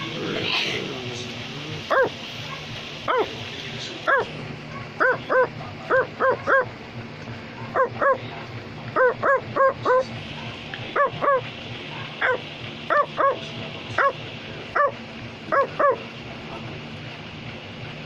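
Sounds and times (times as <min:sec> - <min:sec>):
steady low hum: 0:00.0 - 0:18.0
high yapping barks: 0:01.9 - 0:03.4, 0:04.1 - 0:06.7, 0:08.9 - 0:13.4.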